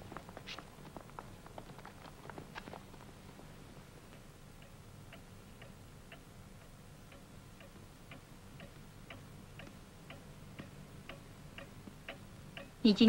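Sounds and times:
clock ticking: 4.6 - 13.0.

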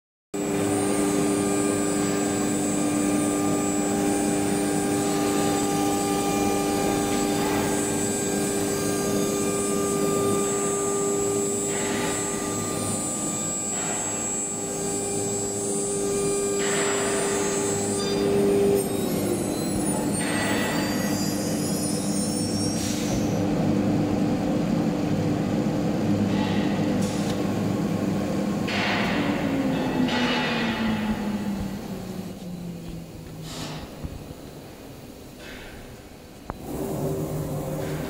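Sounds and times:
router machine whine and hum: 0.4 - 20.4.

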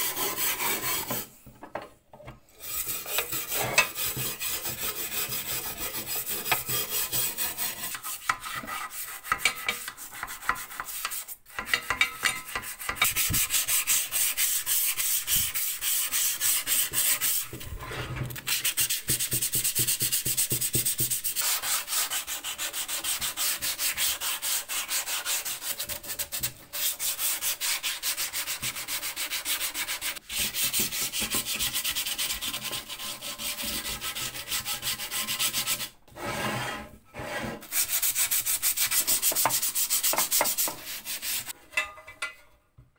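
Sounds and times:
abrasive scrubbing on metal: 2.6 - 18.0.

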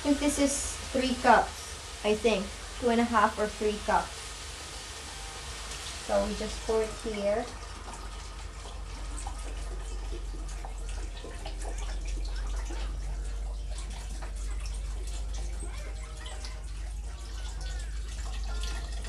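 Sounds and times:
liquid pouring into pot: 4.1 - 19.0.

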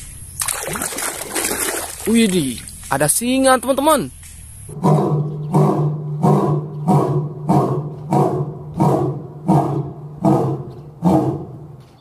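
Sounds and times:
lion roaring: 4.7 - 11.9.

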